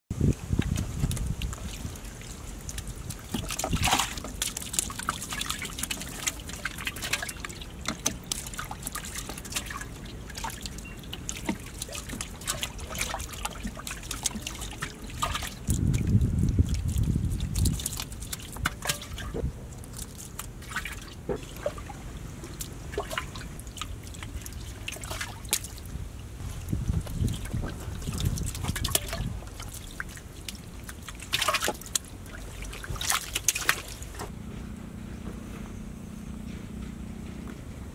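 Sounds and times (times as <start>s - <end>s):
muddy water trickling and splashing: 0.1s - 34.3s
low rumble: 34.3s - 37.9s.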